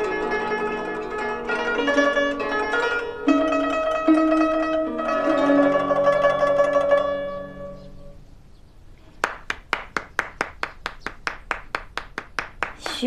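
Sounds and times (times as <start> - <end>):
plucked zither notes ringing: 0.0 - 8.2
person clapping slowly: 9.2 - 13.0.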